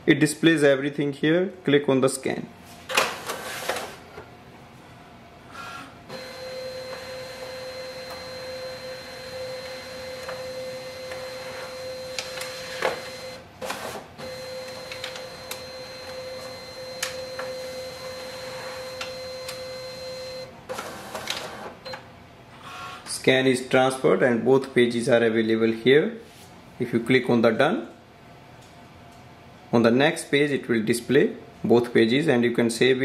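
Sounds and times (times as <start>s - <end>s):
document feeder motor whine: 5.6s - 22.0s.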